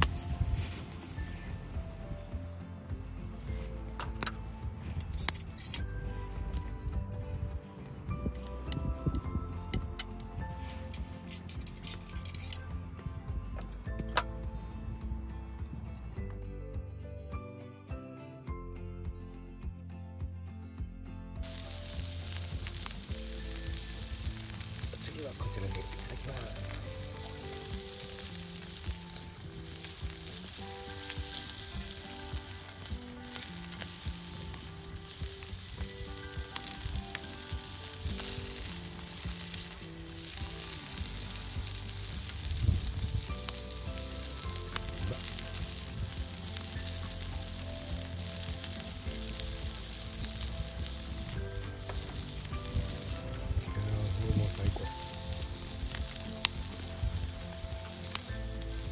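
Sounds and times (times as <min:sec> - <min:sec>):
soft background music: 0:00.0 - 0:58.9
meat sizzling in a pan: 0:21.4 - 0:58.9.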